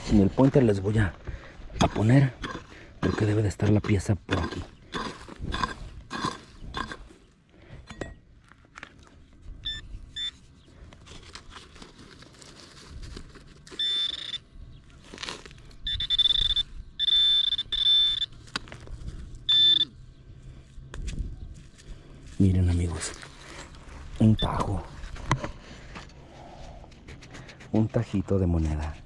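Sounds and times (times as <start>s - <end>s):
digging in soil: 0.0s - 7.4s, 10.1s - 16.0s
metal detector beeping: 9.6s - 10.4s, 13.7s - 14.6s, 15.7s - 18.4s, 19.4s - 20.0s, 24.2s - 25.0s.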